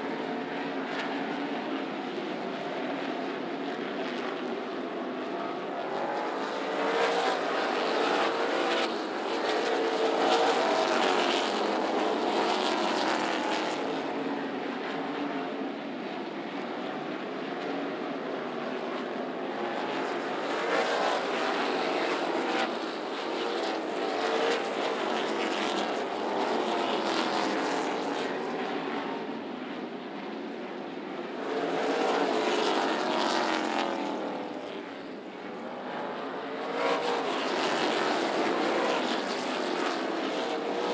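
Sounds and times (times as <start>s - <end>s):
race car engines passing: 3.8s - 15.4s, 18.6s - 29.2s, 31.4s - 34.8s, 35.9s - 40.9s.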